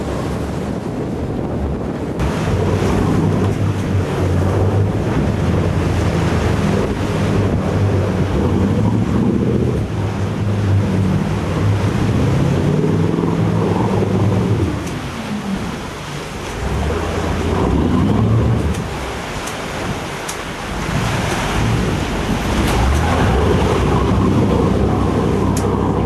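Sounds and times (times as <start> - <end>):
boat engine running: 0.0 - 26.0
water rushing past hull: 0.0 - 26.0
wind buffeting microphone: 0.0 - 26.0.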